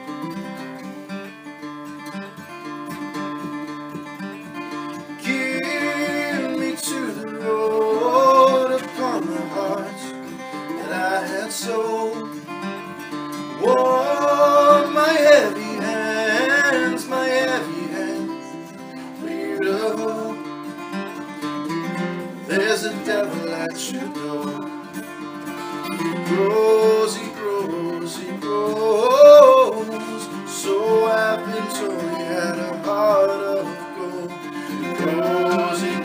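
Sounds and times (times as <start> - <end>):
acoustic guitar strumming: 0.0 - 36.0.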